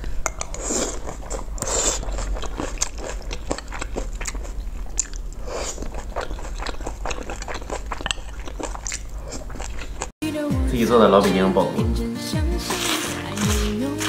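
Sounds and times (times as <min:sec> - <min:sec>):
close-miked wet chewing: 0:00.3 - 0:10.2, 0:12.6 - 0:14.0.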